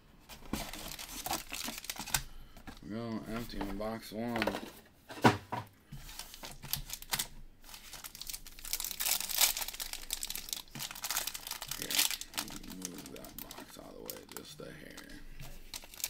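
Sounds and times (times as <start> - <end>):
foil wrappers crinkling and tearing: 0.5 - 2.3, 6.1 - 16.0.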